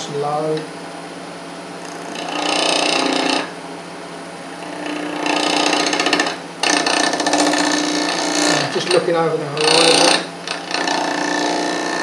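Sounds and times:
lathe motor hum: 1.8 - 3.5, 4.5 - 12.0
gouge cutting wood on lathe: 1.9 - 3.5, 4.6 - 12.0.

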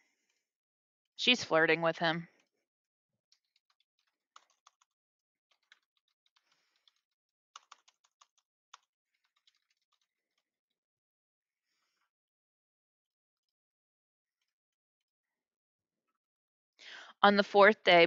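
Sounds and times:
faint keyboard typing: 3.3 - 10.5.

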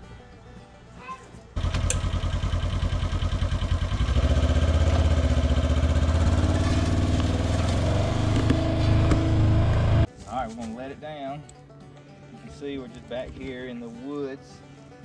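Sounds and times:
utility vehicle engine accelerating: 1.6 - 10.1.

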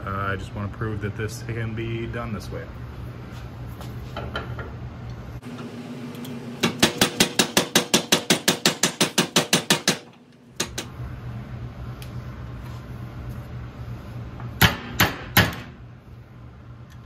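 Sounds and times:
hammer striking metal: 6.6 - 10.9, 14.6 - 15.8.

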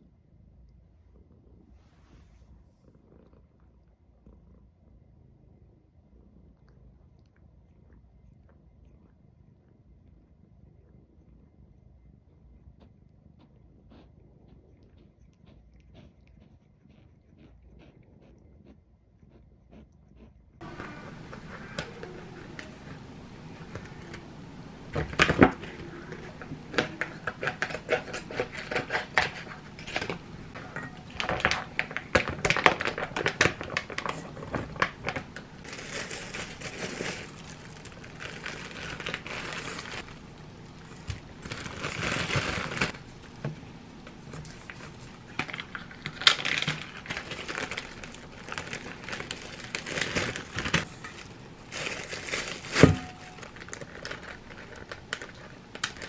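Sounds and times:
plastic packaging crinkling: 20.6 - 43.4, 44.1 - 56.0.

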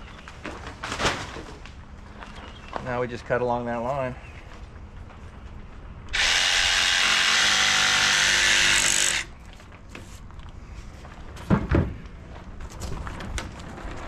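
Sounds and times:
jigsaw cutting: 6.1 - 9.3.

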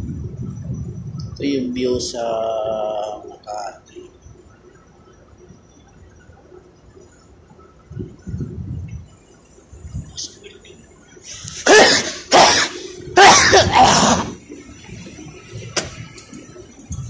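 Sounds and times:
person coughing hard: 11.6 - 14.4.

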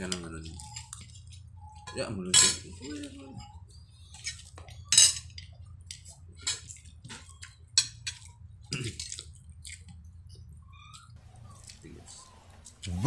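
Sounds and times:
wet chewing: 2.7 - 13.0.

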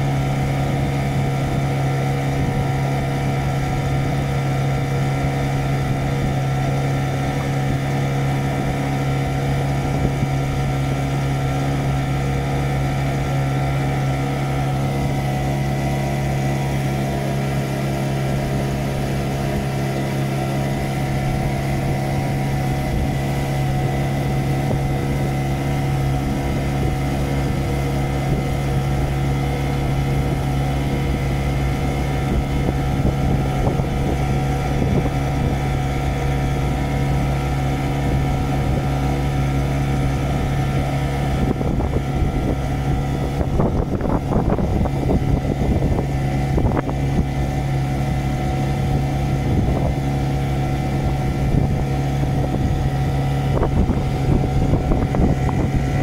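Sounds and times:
boat motor humming: 0.0 - 56.0.

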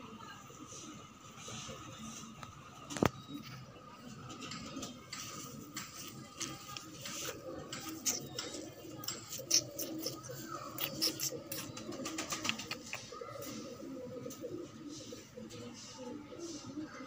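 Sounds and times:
pigeons cooing: 0.6 - 17.0.

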